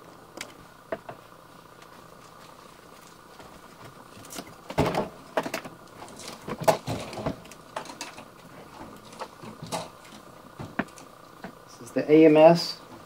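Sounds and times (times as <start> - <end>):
faint steady hum: 0.0 - 13.0
parts knocking and scraping: 3.4 - 11.6.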